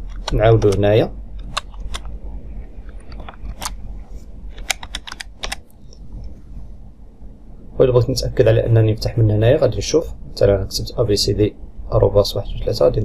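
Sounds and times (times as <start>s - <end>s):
typing on computer keyboard: 4.6s - 5.7s.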